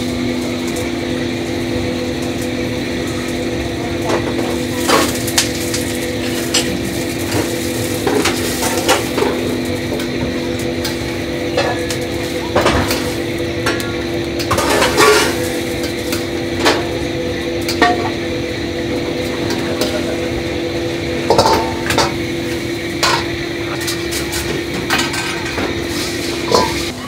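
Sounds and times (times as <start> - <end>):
kitchen hum: 0.0 - 27.0
metal ladle clanking on wok and bowls: 14.4 - 17.0, 17.6 - 18.2, 21.2 - 22.4, 23.0 - 27.0.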